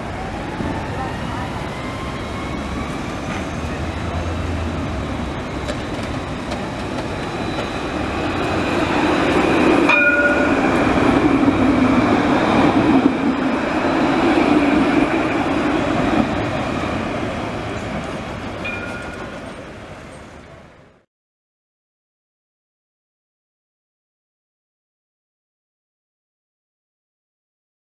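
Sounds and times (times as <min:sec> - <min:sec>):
tram passing: 0:00.0 - 0:21.1
short high ring: 0:09.9 - 0:10.6.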